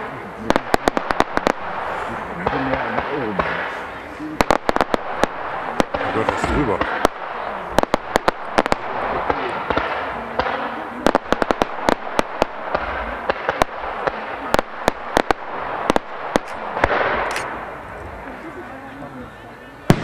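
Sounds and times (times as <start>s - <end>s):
fireworks cracks and bangs: 0.0s - 17.7s
fireworks hissing and crackling: 0.0s - 20.0s.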